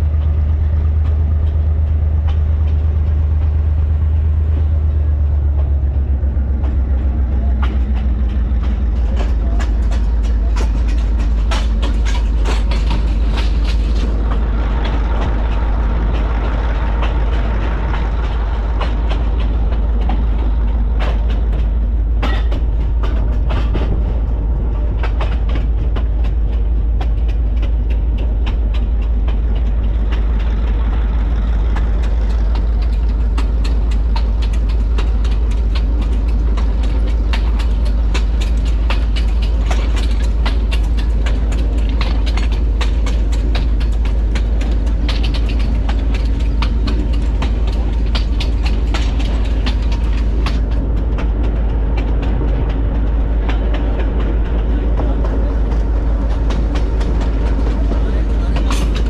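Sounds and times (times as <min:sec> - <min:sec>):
locomotive engine rumble: 0:00.0 - 0:59.0
wheels clicking on track: 0:00.0 - 0:59.0.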